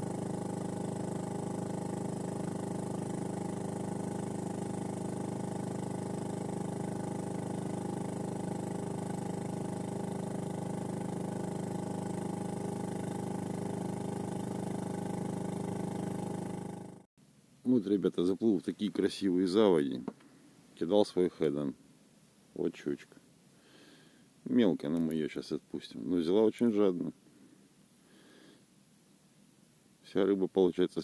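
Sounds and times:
outboard motor running: 0:00.0 - 0:17.1.

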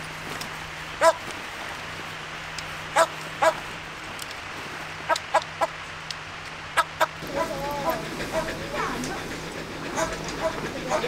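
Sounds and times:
dog barking: 0:01.0 - 0:01.2, 0:03.0 - 0:03.6, 0:06.8 - 0:09.0, 0:09.9 - 0:11.0.

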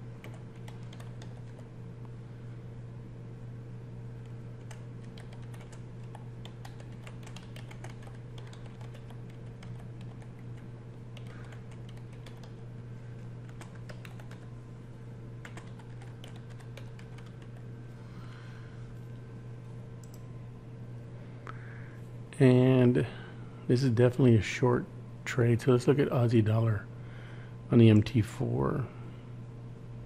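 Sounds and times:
steady low hum: 0:00.0 - 0:30.0
computer keyboard typing: 0:00.2 - 0:01.7, 0:04.6 - 0:12.6, 0:13.2 - 0:14.5, 0:15.4 - 0:17.7.

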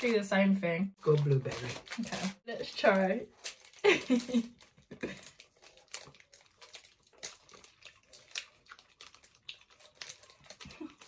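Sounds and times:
plastic wrappers crinkling: 0:00.0 - 0:00.2, 0:01.0 - 0:11.0
person chewing: 0:03.3 - 0:11.0.

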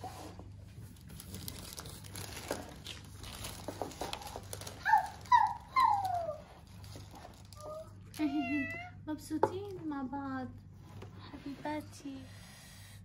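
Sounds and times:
cat meowing: 0:08.1 - 0:09.0.

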